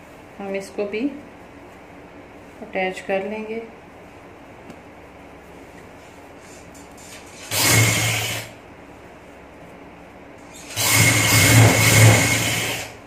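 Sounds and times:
sewing machine running: 0:07.0 - 0:08.6, 0:10.4 - 0:13.0.

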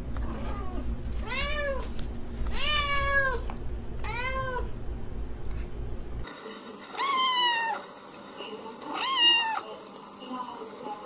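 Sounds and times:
cat meowing: 0:00.2 - 0:01.9, 0:02.5 - 0:03.4, 0:04.0 - 0:04.7, 0:07.0 - 0:07.8, 0:08.9 - 0:09.6.

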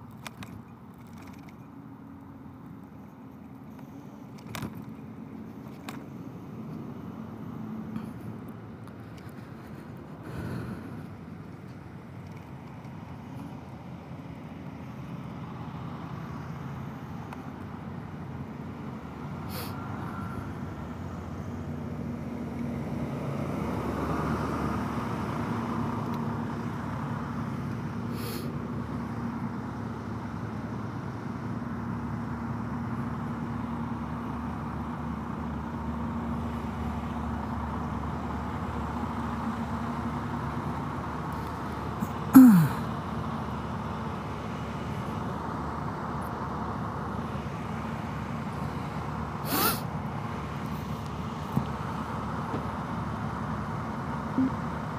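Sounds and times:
scooter rolling over rough asphalt: 0:02.8 - 0:06.2.

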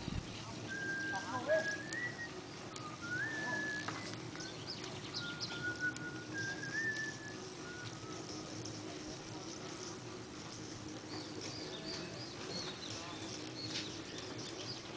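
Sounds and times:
person whistling a slow tune: 0:00.7 - 0:04.2, 0:05.1 - 0:08.4
bird chirps: 0:00.7 - 0:08.4.

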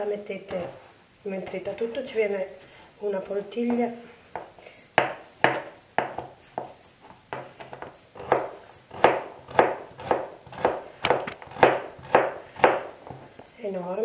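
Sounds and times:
knife chopping on plastic board: 0:04.3 - 0:13.3.

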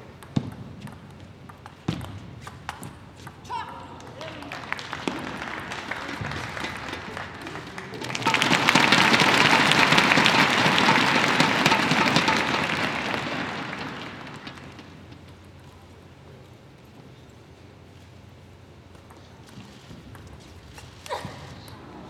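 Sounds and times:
crowd applauding: 0:04.0 - 0:15.4.

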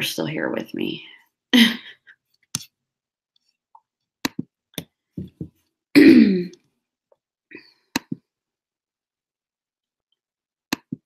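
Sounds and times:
woman clearing her throat: 0:06.0 - 0:06.6.

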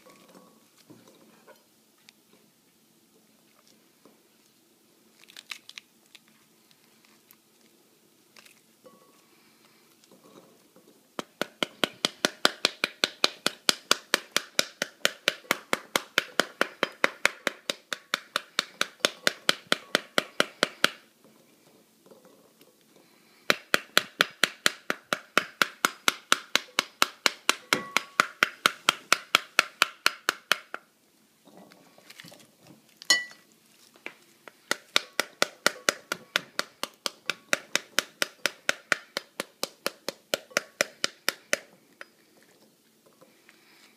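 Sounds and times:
spoon tapping pomegranate rind: 0:11.2 - 0:20.9, 0:23.5 - 0:30.8, 0:34.5 - 0:42.1.

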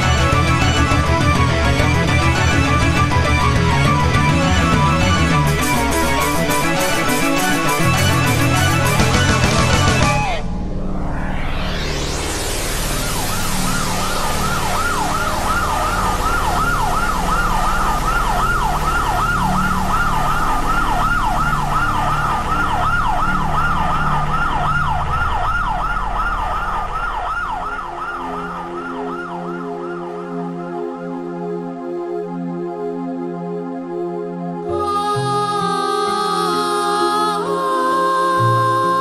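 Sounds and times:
siren in fast yelp mode: 0:05.2 - 0:30.8
steady low rumble: 0:10.2 - 0:29.1.

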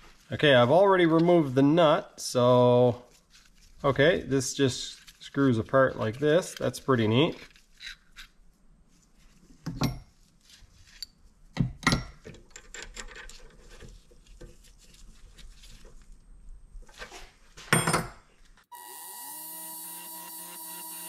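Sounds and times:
lathe motor whine: 0:18.7 - 0:21.0.

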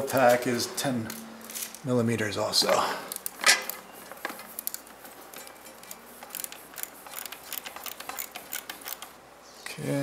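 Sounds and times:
socket ratchet clicking: 0:03.1 - 0:09.2.

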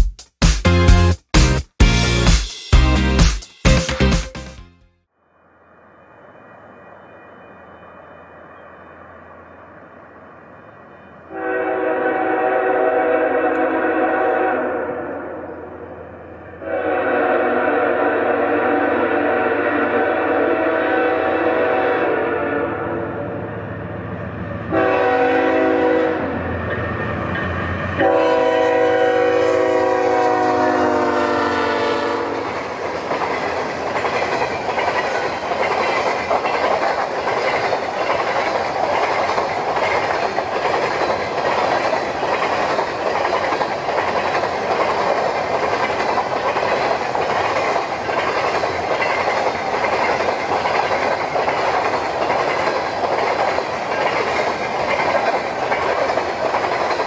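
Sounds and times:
train rolling past rumble: 0:05.4 - 0:57.0
train horn blasts: 0:11.2 - 0:15.8, 0:16.6 - 0:23.5, 0:24.7 - 0:26.7, 0:28.0 - 0:32.6
wheels clacking over rail joints: 0:32.4 - 0:57.0.

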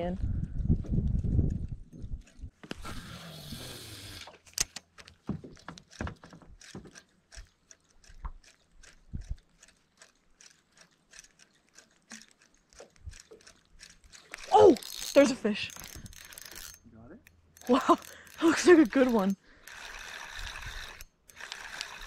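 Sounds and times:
fishing reel clicking: 0:06.6 - 0:22.0.

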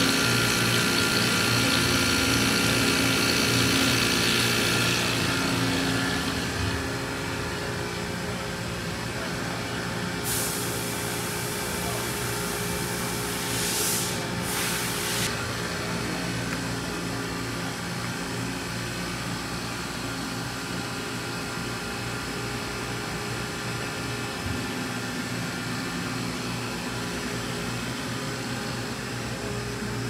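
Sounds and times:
machine spindle whine: 0:00.0 - 0:10.2
hiss: 0:10.2 - 0:11.4, 0:13.2 - 0:15.3.

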